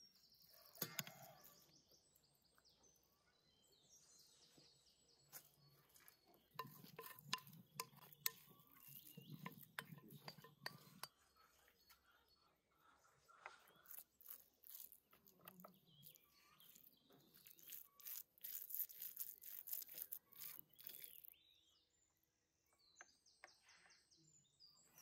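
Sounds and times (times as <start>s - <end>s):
small birds chirping: 0.0s - 25.0s
wooden spoon scraping meat: 6.6s - 11.4s, 13.4s - 21.4s.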